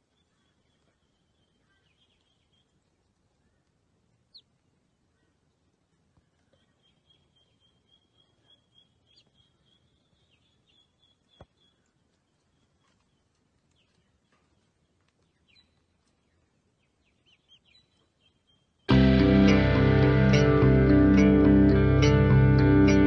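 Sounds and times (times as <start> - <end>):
faint high bird chirps: 0.0 - 2.8, 6.2 - 14.7.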